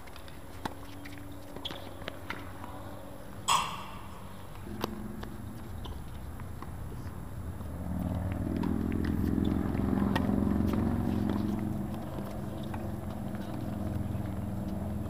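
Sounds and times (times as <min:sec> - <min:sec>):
tennis balls being struck: 0:00.6 - 0:07.3
low rumble: 0:03.5 - 0:07.9.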